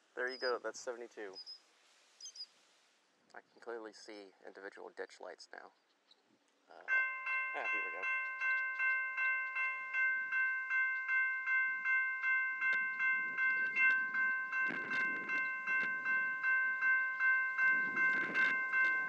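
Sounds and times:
level crossing bell ringing: 6.8s - 19.0s
wind rumbling on microphone: 12.7s - 19.0s.

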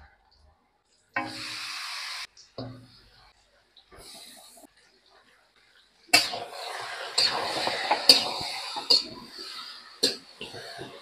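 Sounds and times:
spatula scraping a metal pan: 6.2s - 11.0s.

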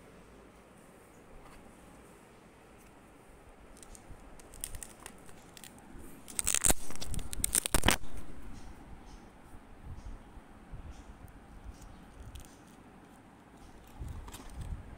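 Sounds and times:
pages crinkling and rustling: 3.8s - 8.3s.

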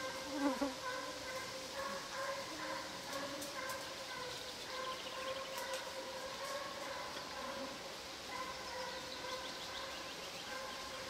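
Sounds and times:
hounds baying: 0.8s - 11.0s.

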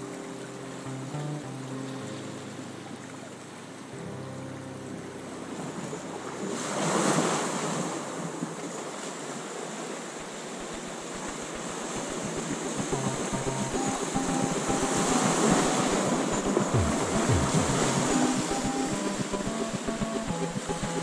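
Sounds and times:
ocean waves on rocky shore: 5.5s - 21.0s.

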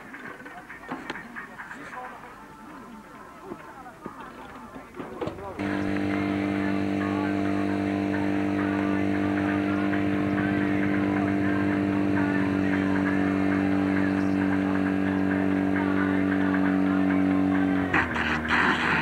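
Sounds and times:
faint voices: 0.0s - 19.0s
pump engine droning: 5.4s - 19.0s.

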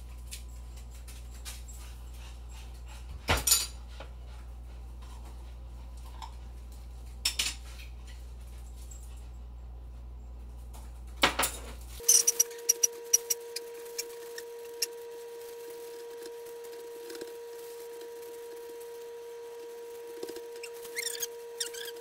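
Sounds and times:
steady hum: 12.0s - 22.0s.

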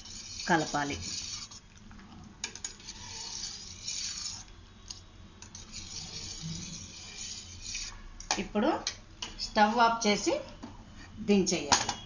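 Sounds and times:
spoon stirring and scraping a pot: 0.0s - 1.8s, 2.4s - 8.2s.

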